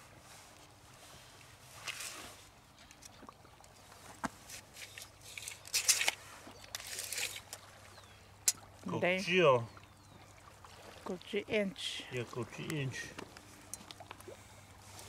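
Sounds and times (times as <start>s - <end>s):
scraping and rustling on gravel: 1.6s - 3.1s, 4.0s - 7.6s.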